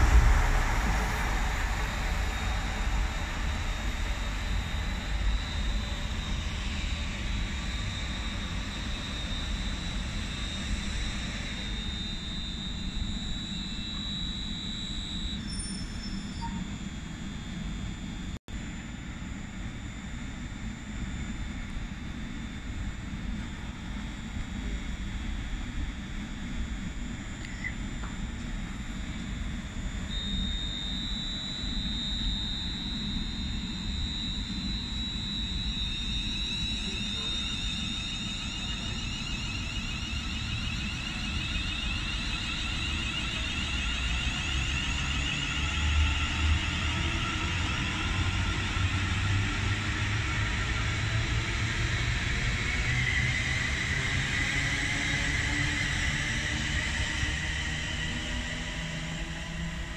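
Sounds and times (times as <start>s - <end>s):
train wheels rumbling on rail: 0.0s - 6.0s
electric traction whine: 0.0s - 59.9s.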